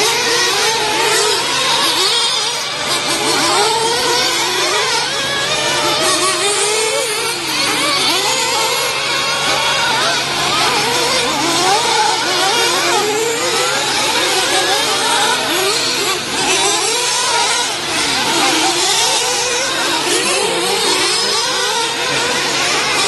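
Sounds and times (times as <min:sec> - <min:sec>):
rc car engines whining: 0:00.0 - 0:23.0.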